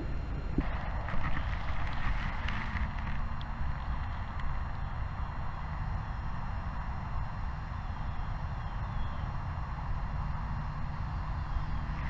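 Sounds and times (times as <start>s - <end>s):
low rumble: 9.6s - 12.0s.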